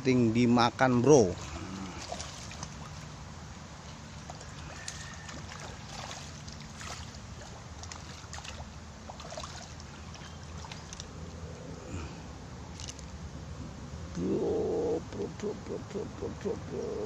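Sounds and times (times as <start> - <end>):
steady low hum: 0.0 - 17.0
water sloshing and splashing: 1.2 - 11.6, 12.6 - 13.2.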